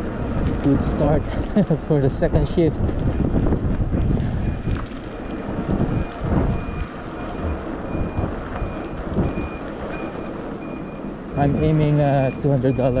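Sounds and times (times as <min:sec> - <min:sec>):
street traffic rumble: 0:00.0 - 0:13.0
wind on microphone: 0:02.2 - 0:09.9
reversing alarm beeping: 0:04.0 - 0:04.8, 0:05.8 - 0:13.0.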